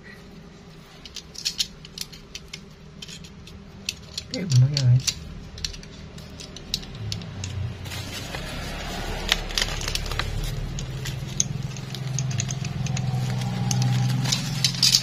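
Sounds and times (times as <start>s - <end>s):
steady low hum: 0.0s - 15.0s
plastic crinkling: 4.0s - 15.0s.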